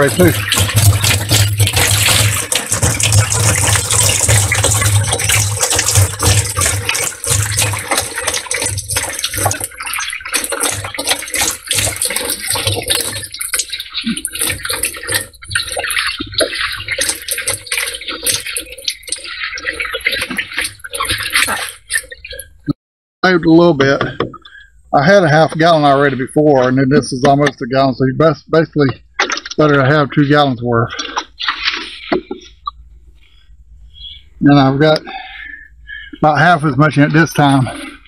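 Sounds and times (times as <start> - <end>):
liquid pouring into plastic can: 0.0 - 22.6.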